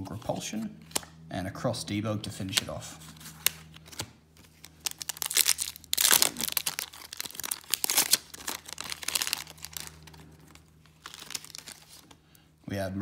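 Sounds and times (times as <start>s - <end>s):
foil wrapper tearing and crinkling: 3.4s - 12.2s.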